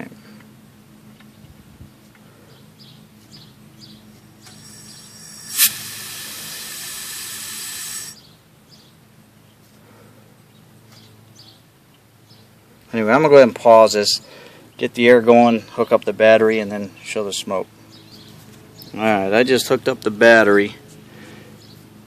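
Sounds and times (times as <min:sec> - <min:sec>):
compressed air hissing: 0:04.4 - 0:08.2.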